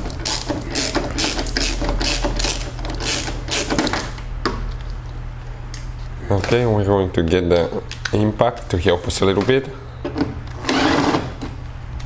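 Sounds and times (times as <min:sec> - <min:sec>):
hand ratchet clicking: 0:00.2 - 0:04.1.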